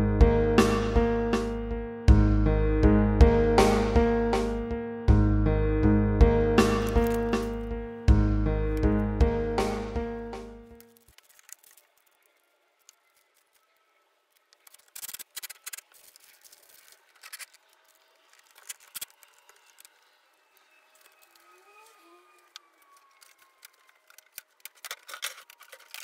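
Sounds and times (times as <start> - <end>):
background music: 0.0 - 11.0
clamps and boards clicking: 22.5 - 26.0.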